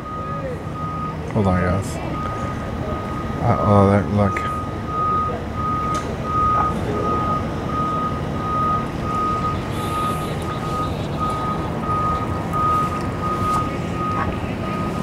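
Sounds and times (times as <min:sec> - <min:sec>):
reversing alarm beeping: 0:00.0 - 0:15.0
vehicle noise: 0:00.0 - 0:15.0.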